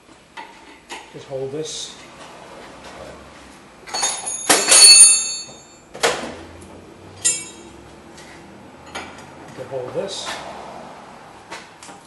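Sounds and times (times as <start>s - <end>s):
metal hand tools clanking: 3.9s - 5.7s, 7.2s - 7.8s.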